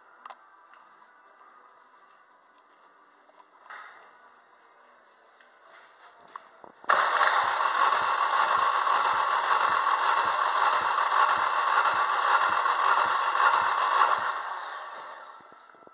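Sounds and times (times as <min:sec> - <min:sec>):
starter motor cranking engine: 0:06.9 - 0:15.5.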